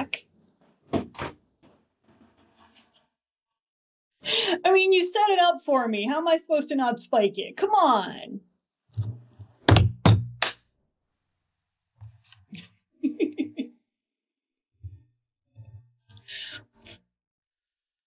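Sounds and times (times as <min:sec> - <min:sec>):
person laughing: 0:13.0 - 0:13.8.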